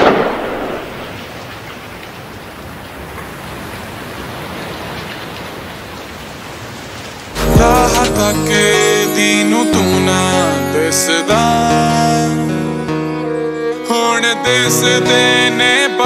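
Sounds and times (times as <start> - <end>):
rain-like hiss: 0.0 - 7.5
song music: 7.4 - 16.0.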